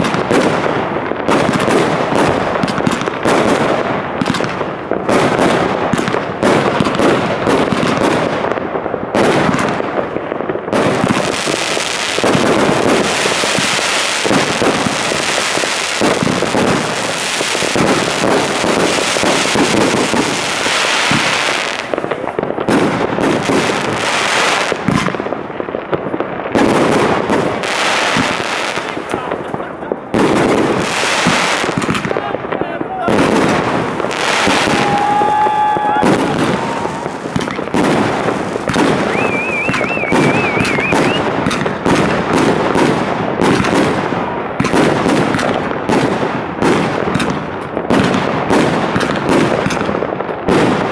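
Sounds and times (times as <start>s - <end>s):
fireworks launching and bursting: 0.0s - 50.9s
dense firework hiss: 33.9s - 41.2s.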